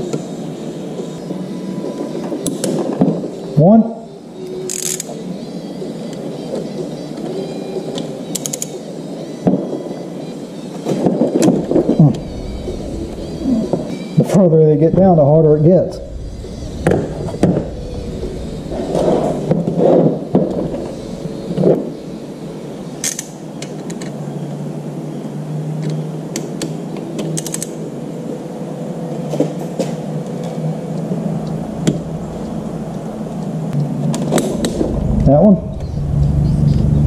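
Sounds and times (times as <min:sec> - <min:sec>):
steady low hum: 0:11.1 - 0:23.6, 0:30.5 - 0:37.0.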